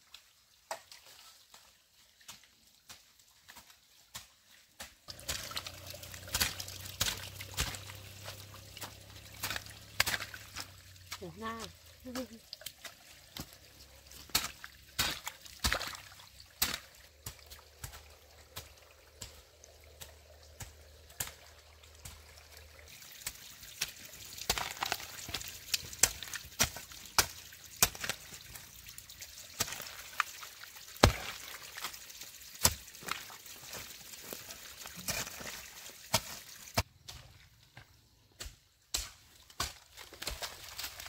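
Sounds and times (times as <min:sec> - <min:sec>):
hoe chopping muddy soil: 0:02.3 - 0:41.0.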